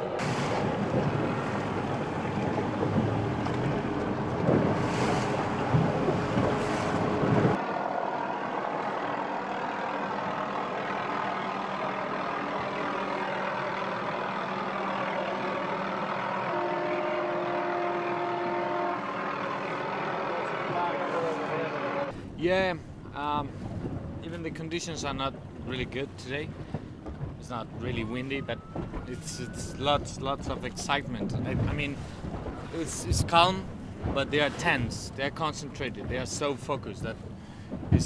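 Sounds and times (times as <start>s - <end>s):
wind buffeting microphone: 0.0s - 7.6s, 22.1s - 38.0s
boat engine hum: 0.0s - 38.0s
boat rushing through water: 0.0s - 38.0s.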